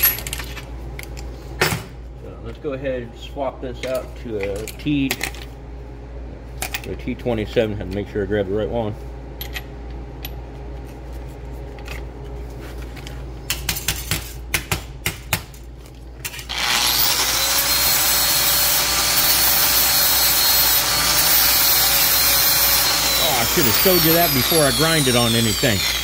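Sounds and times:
angle grinder grinding metal: 0:16.5 - 0:26.0.

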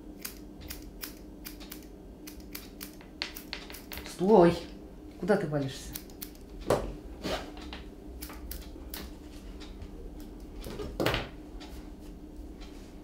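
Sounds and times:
hair plucking snaps: 0:00.2 - 0:04.0, 0:05.9 - 0:06.5.

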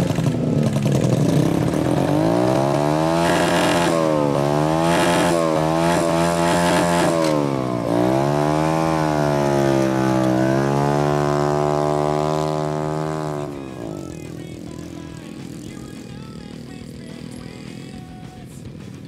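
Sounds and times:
motorcycle engine pulling away: 0:00.0 - 0:19.0.

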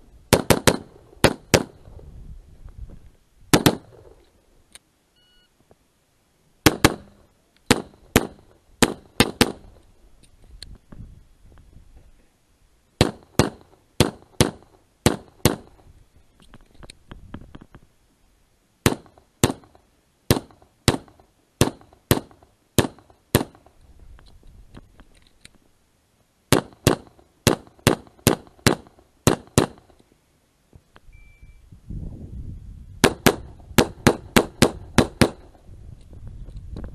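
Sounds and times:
pistol shots: 0:00.3 - 0:01.8, 0:03.5 - 0:04.1, 0:06.6 - 0:09.7, 0:13.0 - 0:15.7, 0:18.8 - 0:23.6, 0:26.5 - 0:29.9, 0:33.0 - 0:35.6.

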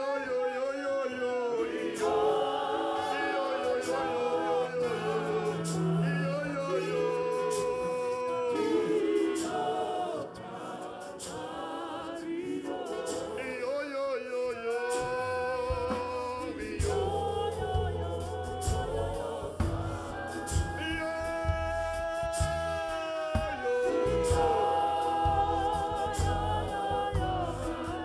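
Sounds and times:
choir singing a hymn: 0:00.0 - 0:28.0
male lead voice singing: 0:03.1 - 0:09.6, 0:13.4 - 0:19.3, 0:20.3 - 0:28.0
low bass notes: 0:16.8 - 0:20.9, 0:25.2 - 0:28.0
drum hits: 0:19.6 - 0:23.7.

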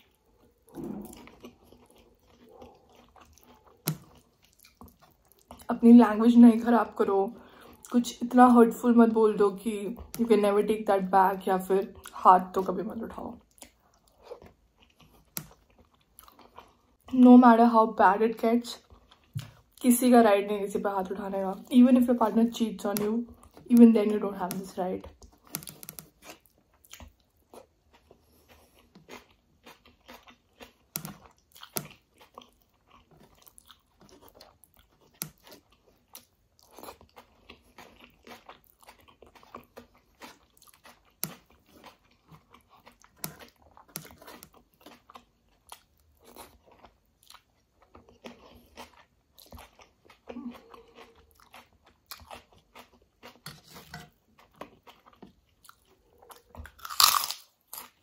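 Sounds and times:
chewing and crunching food: 0:00.0 - 0:58.0
wet mouth clicks: 0:00.7 - 0:02.6.

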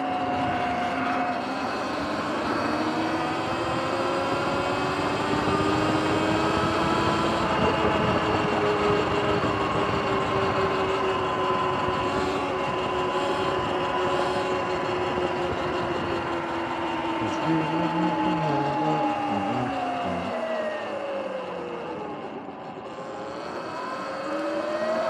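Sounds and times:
wind and road noise: 0:00.0 - 0:17.3
electric dirt bike motor whining: 0:00.0 - 0:17.5, 0:18.6 - 0:25.0.

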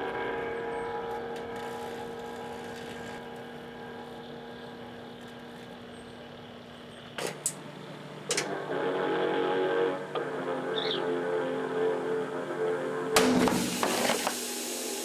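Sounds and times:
microwave oven humming: 0:00.0 - 0:15.0
sudden loud noises: 0:07.4 - 0:14.3.

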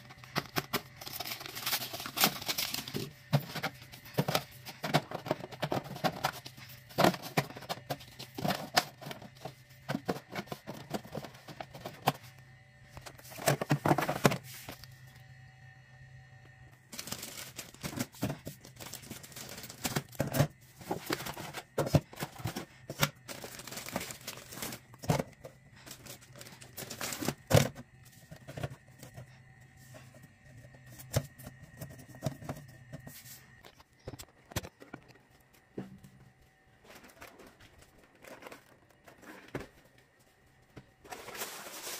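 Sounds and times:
plastic bottles knocking and clicking: 0:00.0 - 0:12.3, 0:13.0 - 0:14.8, 0:16.9 - 0:29.3.

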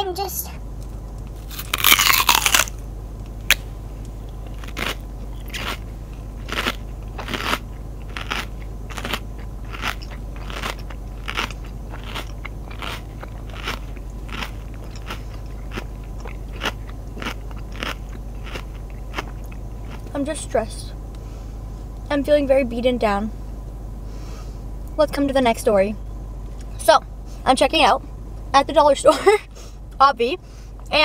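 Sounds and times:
chewing: 0:01.4 - 0:02.7, 0:04.3 - 0:20.1
person biting into bagel: 0:01.4 - 0:02.8, 0:04.5 - 0:20.1.

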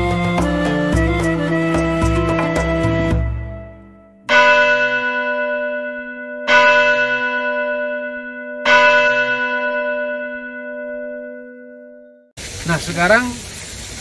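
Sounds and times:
bell ringing: 0:04.3 - 0:12.2.

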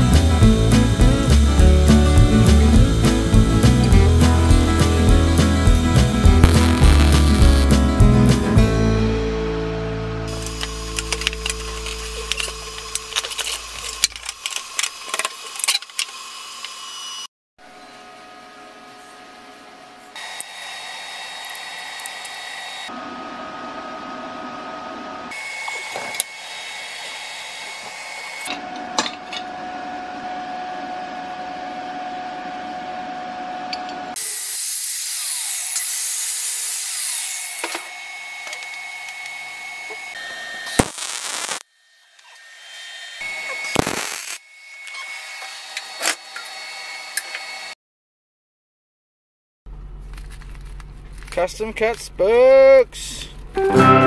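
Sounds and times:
hissing tool noise: 0:04.5 - 0:07.9, 0:10.3 - 0:17.3, 0:20.2 - 0:22.9, 0:25.3 - 0:28.6, 0:34.2 - 0:47.7.

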